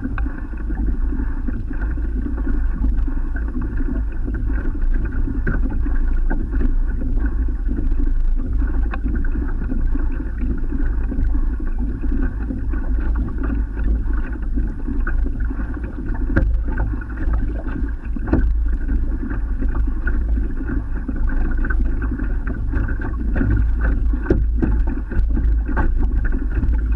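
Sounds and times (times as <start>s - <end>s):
water rushing along kayak hull: 0.0s - 26.9s
wind rumble on microphone: 0.0s - 26.9s.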